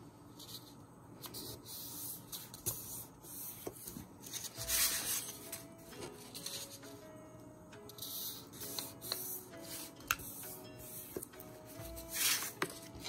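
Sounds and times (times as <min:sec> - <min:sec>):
paper rustling and rubbing: 0:00.4 - 0:06.8, 0:11.8 - 0:13.0.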